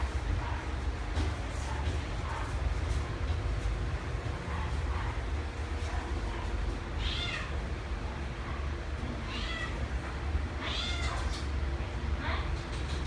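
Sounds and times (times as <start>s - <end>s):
steady low hum: 0.0s - 13.0s
cat meowing: 7.0s - 7.6s, 9.2s - 9.8s, 10.6s - 11.5s.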